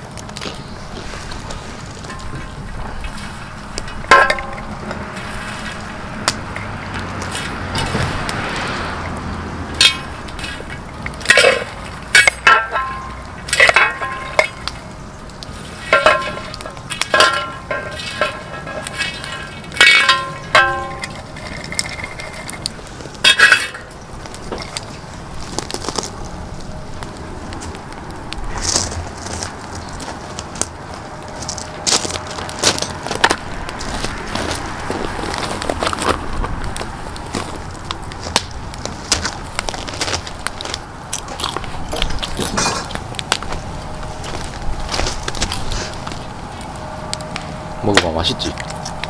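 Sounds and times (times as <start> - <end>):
metal spatula scraping griddle: 0.6 - 14.9, 15.5 - 25.0.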